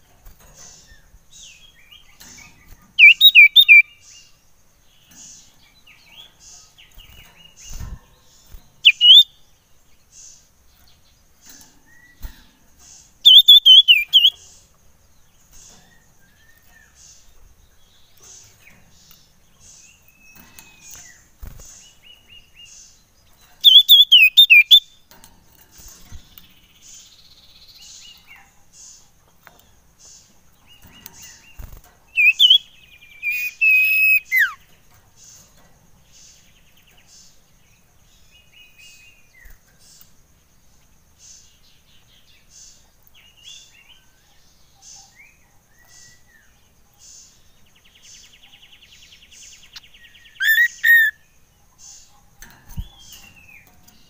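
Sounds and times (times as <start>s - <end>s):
bird giving sharp chirps: 3.0s - 3.9s, 8.8s - 9.3s, 13.2s - 14.4s, 23.6s - 24.9s, 31.6s - 34.6s, 49.8s - 51.2s.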